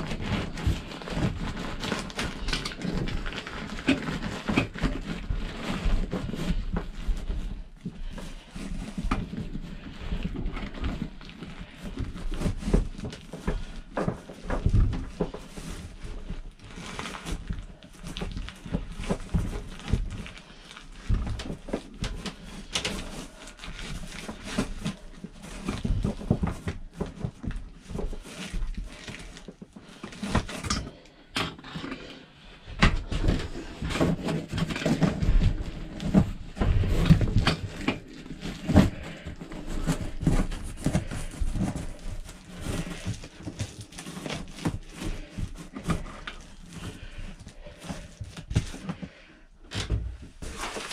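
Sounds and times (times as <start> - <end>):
insulation rustling and crinkling: 0.0 - 50.9.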